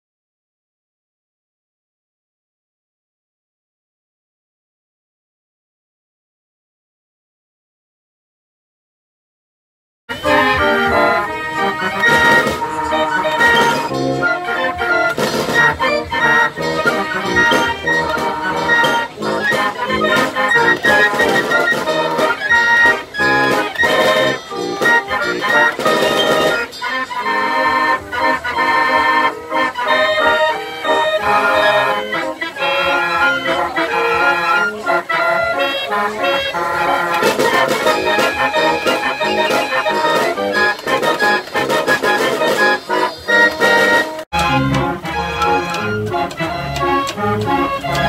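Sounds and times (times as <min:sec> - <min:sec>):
fairground organ playing lively tune: 0:10.1 - 0:48.0.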